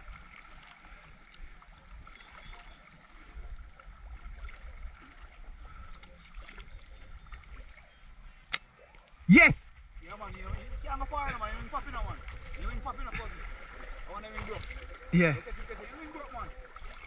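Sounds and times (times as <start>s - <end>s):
water lapping against kayak: 0.0s - 17.0s
wind rumble on microphone: 9.8s - 13.5s.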